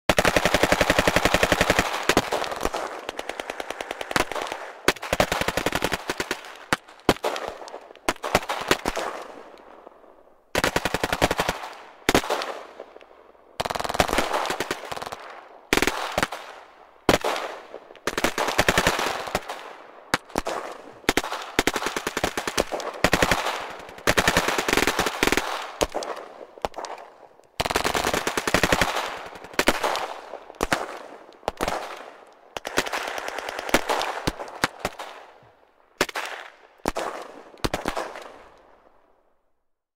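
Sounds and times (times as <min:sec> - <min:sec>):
machine guns firing bursts: 0:00.1 - 0:09.4, 0:10.6 - 0:12.7, 0:13.6 - 0:35.2
rifle shots: 0:13.6 - 0:35.3, 0:36.0 - 0:38.6.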